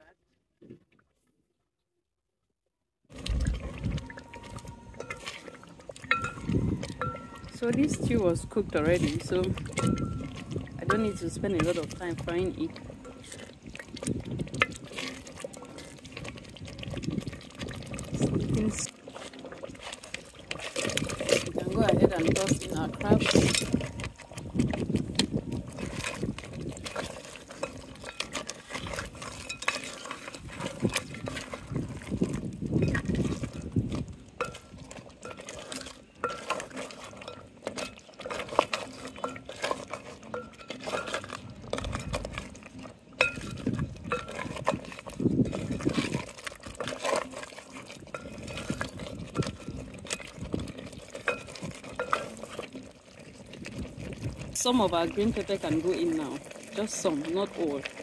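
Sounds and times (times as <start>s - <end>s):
spatula stirring thick stew: 3.1s - 58.0s.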